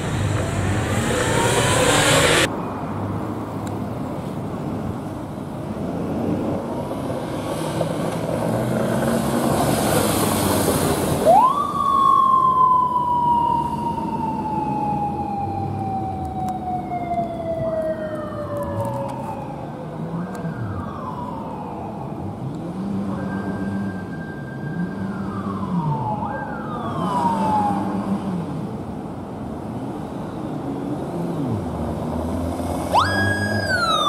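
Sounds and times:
police motorcycle siren wailing: 0.0s - 2.5s, 11.2s - 28.2s, 32.9s - 34.0s
vehicle passing: 0.0s - 3.5s, 7.0s - 14.2s
traffic noise: 0.0s - 34.0s.

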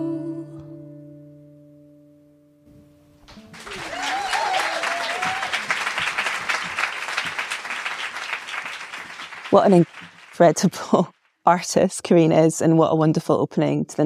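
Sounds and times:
audience applauding: 3.3s - 11.1s
person cheering: 3.6s - 6.4s.

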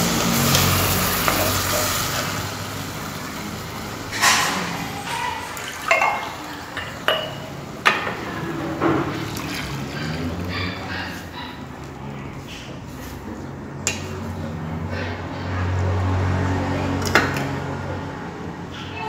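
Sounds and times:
cookware clinking and knocking: 1.2s - 2.0s, 4.1s - 9.6s.

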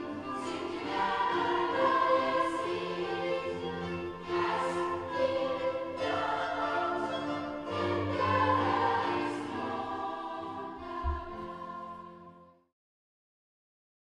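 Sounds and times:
children's choir singing: 0.0s - 12.5s
low thump: 11.0s - 11.5s.

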